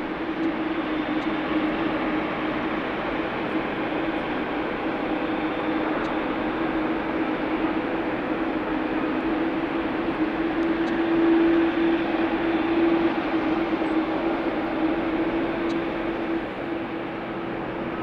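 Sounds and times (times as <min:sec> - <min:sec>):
jet engines at taxi power: 0:00.0 - 0:18.0.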